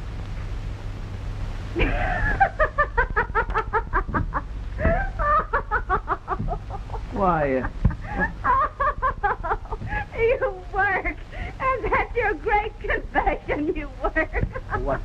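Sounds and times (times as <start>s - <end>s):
steady low hum: 0.0s - 15.0s
woman laughing: 1.8s - 15.0s.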